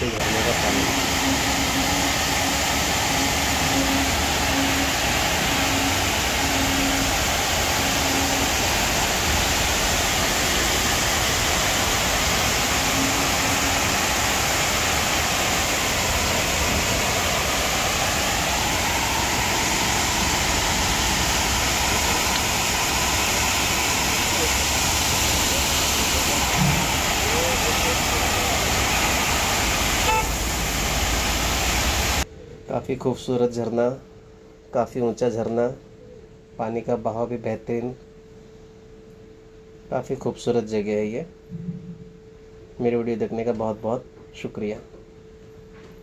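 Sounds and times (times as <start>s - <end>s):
waterfall roaring: 0.0s - 32.2s.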